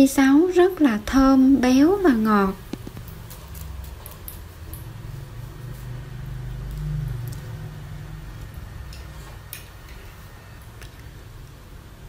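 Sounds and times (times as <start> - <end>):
passing vehicle engine rumble: 2.6 - 10.7.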